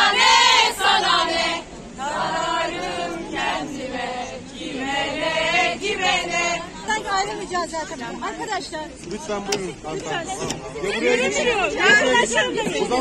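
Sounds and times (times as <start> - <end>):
crowd of women chanting: 0.0 - 8.0.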